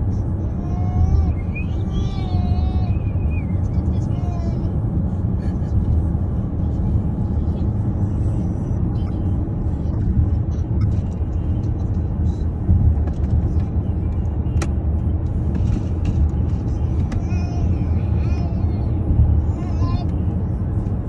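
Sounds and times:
car road rumble from inside: 0.0s - 21.0s.

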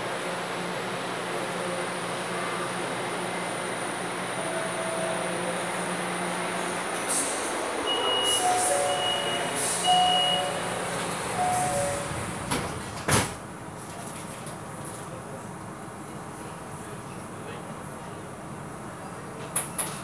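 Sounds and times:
metro train running in tunnel: 0.0s - 20.0s
short high tones: 11.4s - 12.1s.

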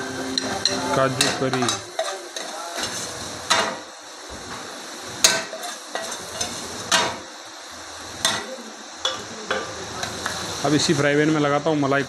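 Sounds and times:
low steady hiss: 0.0s - 12.0s
metal ladle scraping frying pan: 0.3s - 3.8s, 5.2s - 7.2s
ladle clanking against pan: 0.4s - 3.8s.

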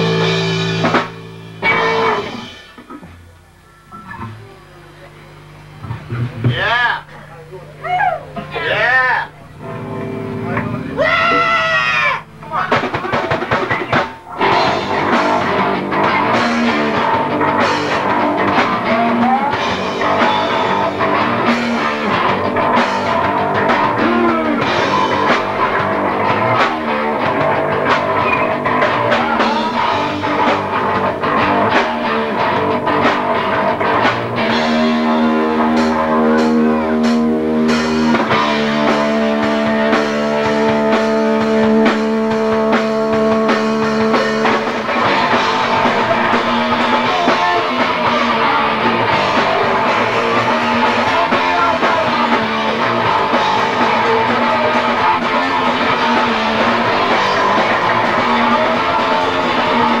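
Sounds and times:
drum kit: 0.0s - 7.0s, 9.4s - 60.0s
guitars: 0.0s - 60.0s.

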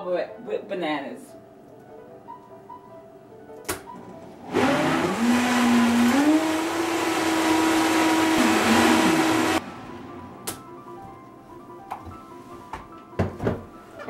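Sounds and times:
blender motor whirring: 4.5s - 9.8s.

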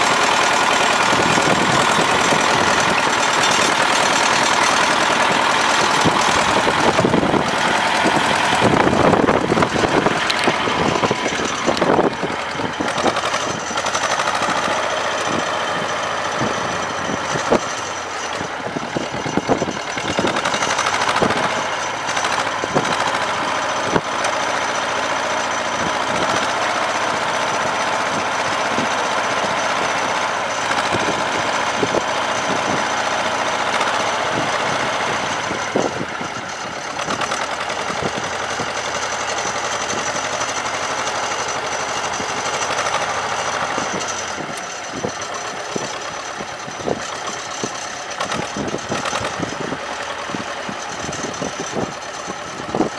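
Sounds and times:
tractor diesel engine idling: 0.0s - 52.9s
sharp clicks: 9.5s - 15.3s, 47.0s - 49.6s.

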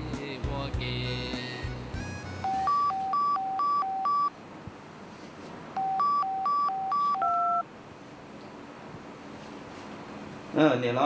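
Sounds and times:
mobile phone beeping ringtone: 2.4s - 4.3s, 5.8s - 7.6s.

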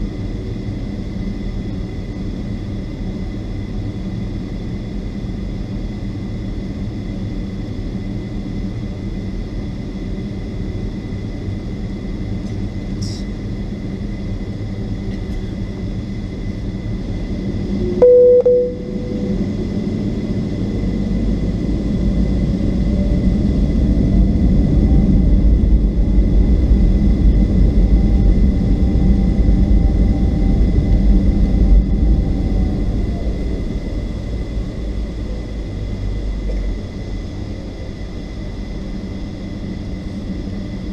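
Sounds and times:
loud single tone: 18.0s - 19.6s
jet engines rumbling: 18.7s - 40.9s.

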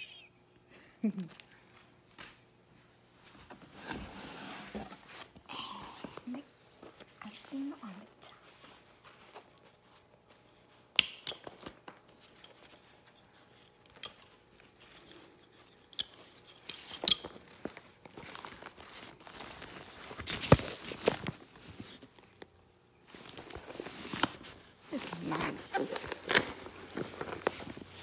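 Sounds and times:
packaging rustling and crinkling: 17.2s - 22.4s, 23.1s - 28.0s.

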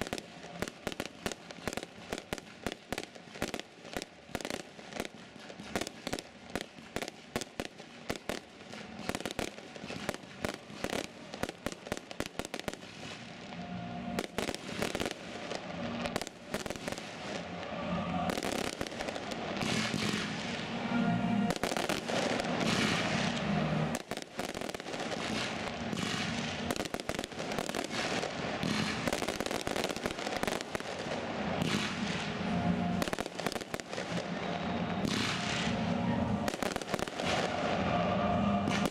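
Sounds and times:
fireworks bangs and crackles: 0.0s - 38.9s
music playing: 13.5s - 24.0s, 31.2s - 38.9s.

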